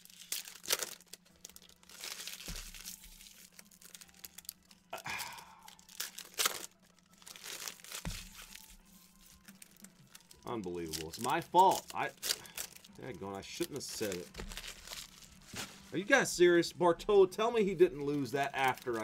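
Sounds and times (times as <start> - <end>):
cards rustling: 0.0 - 4.6, 5.2 - 16.2, 17.6 - 19.0
plastic wrappers tearing and crinkling: 0.0 - 16.2, 17.5 - 19.0.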